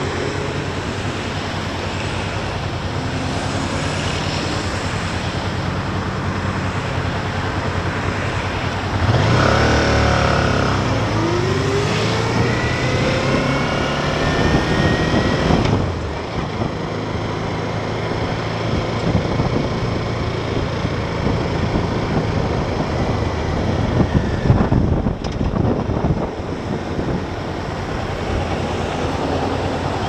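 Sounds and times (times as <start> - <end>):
wind and road noise: 0.0 - 30.0.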